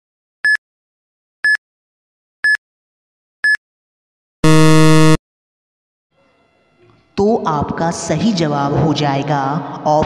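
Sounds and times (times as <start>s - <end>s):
loud harsh buzzer: 4.4s - 5.2s
short electronic beeps: 4.4s - 5.2s.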